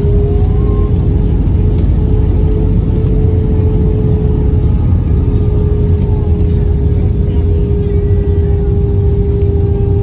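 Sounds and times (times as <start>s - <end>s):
airplane cabin roar on runway: 0.0s - 10.0s.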